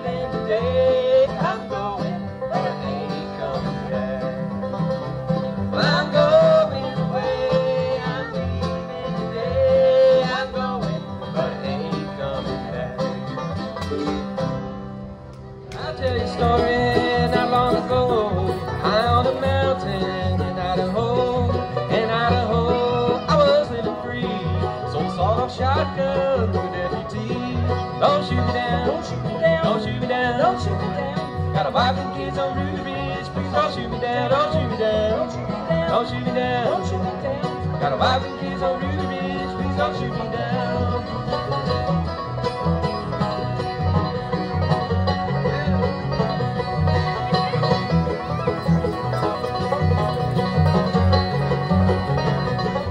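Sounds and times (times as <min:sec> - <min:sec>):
acoustic guitar: 0:00.0 - 0:52.9
banjo: 0:00.0 - 0:52.9
mandolin: 0:00.0 - 0:52.9
upright bass: 0:00.0 - 0:52.9.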